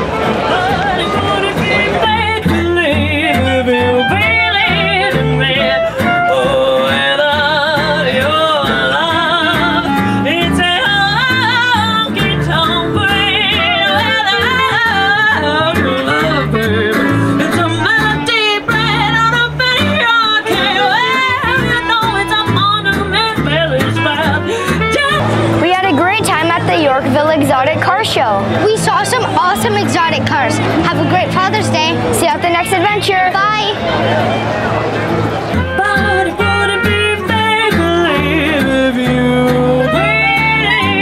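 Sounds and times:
guitar: 0.0 - 41.0
person singing with vibrato: 0.4 - 27.3, 35.6 - 41.0
steady bass line: 20.6 - 41.0.

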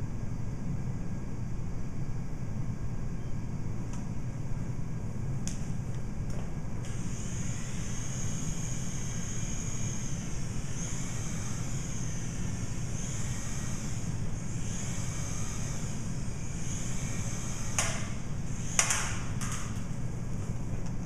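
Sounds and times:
steady low hum: 0.0 - 21.0
rc helicopter motor whining: 6.9 - 19.2.

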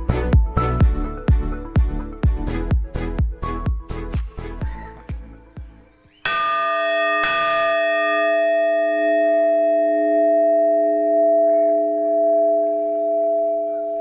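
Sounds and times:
metal bell ringing: 6.3 - 14.0.

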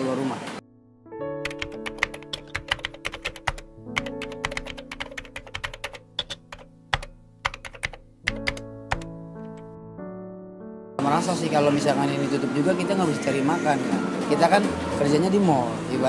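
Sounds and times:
background music sustained notes: 0.0 - 16.0
keyboard typing clicks: 1.4 - 9.7.

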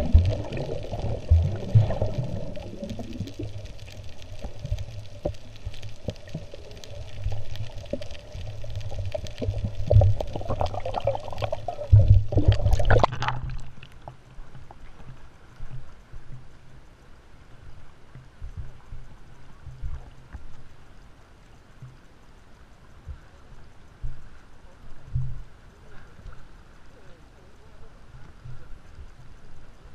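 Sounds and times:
water sloshing and bubbling: 0.0 - 16.8.

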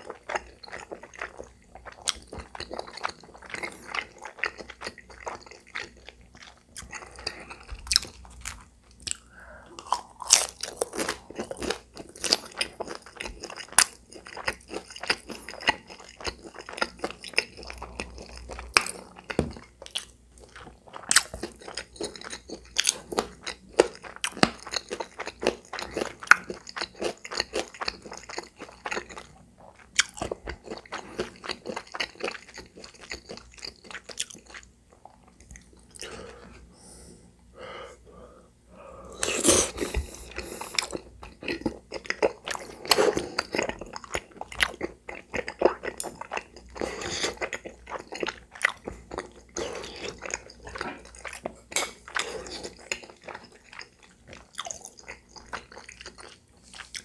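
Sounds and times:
crunchy chewing: 39.1 - 57.0.

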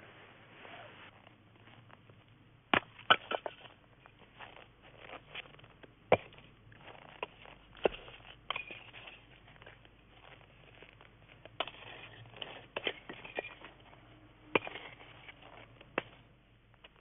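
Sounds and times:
faint hiss: 0.0 - 1.2.

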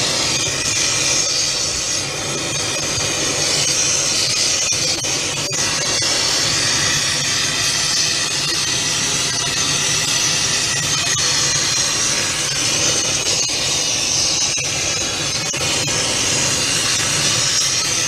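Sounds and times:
gas torch flame hissing: 0.0 - 18.0.

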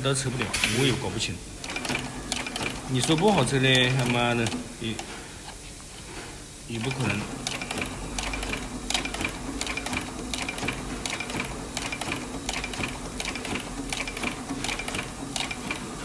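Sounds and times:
sewing machine motor hum: 0.0 - 5.2, 6.7 - 16.0
sewing machine needle clicking: 1.6 - 5.1, 7.4 - 15.8.

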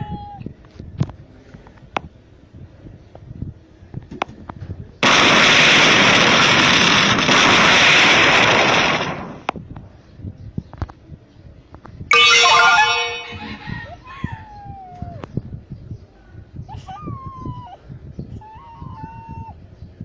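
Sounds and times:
loud rushing flame hiss: 5.0 - 9.5.

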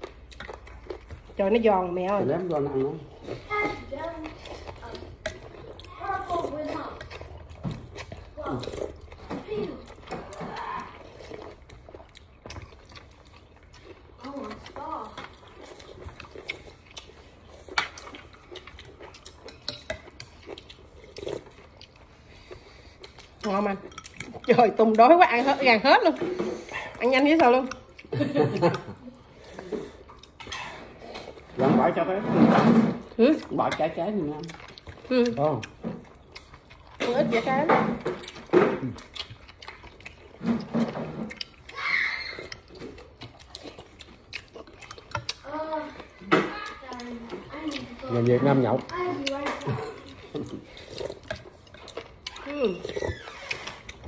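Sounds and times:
person chewing: 0.0 - 32.2, 33.0 - 54.0.

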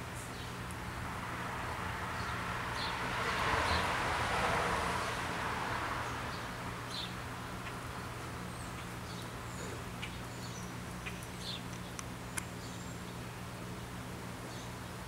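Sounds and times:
sparrows chirping: 0.2 - 1.1, 1.8 - 3.9, 6.0 - 15.0.

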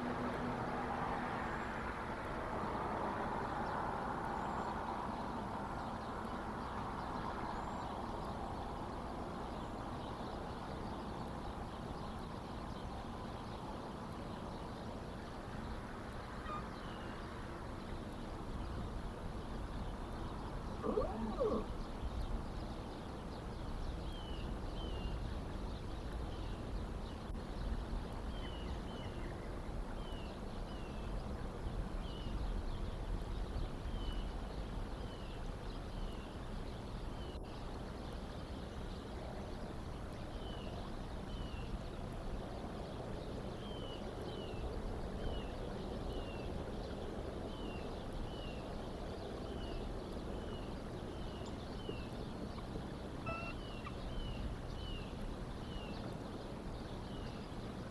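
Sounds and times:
low background rumble: 4.4 - 57.9
small bird slurred calls: 20.7 - 21.9, 53.2 - 55.1.

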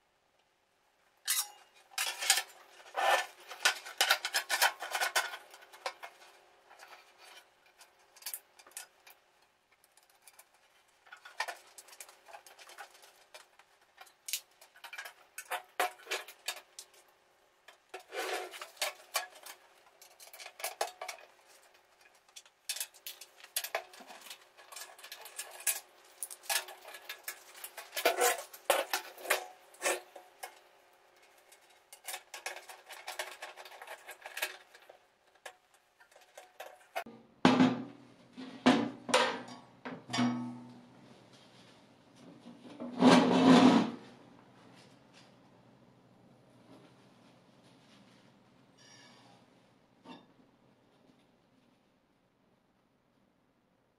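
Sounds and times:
metal clinks and scrapes: 1.3 - 9.2, 9.8 - 17.0, 17.7 - 37.1.

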